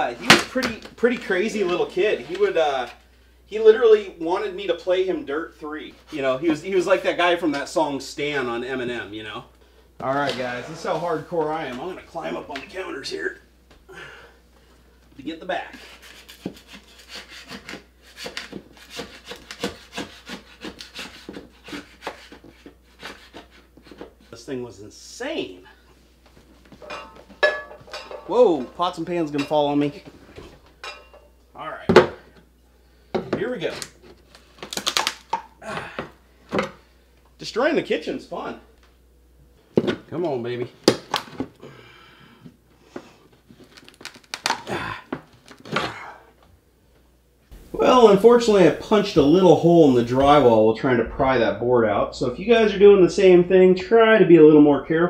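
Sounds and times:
tearing scrapes: 15.8s - 24.0s
wood cracking and creaking: 43.6s - 45.9s.

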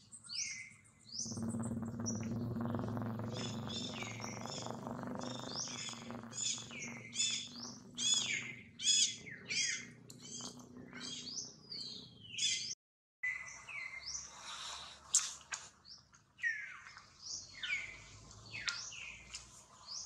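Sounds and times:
birds chirping: 0.0s - 20.0s
low steady hum: 1.3s - 11.0s.

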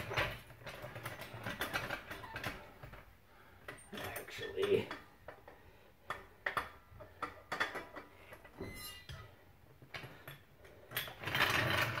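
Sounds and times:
faint squeak: 8.5s - 9.5s.

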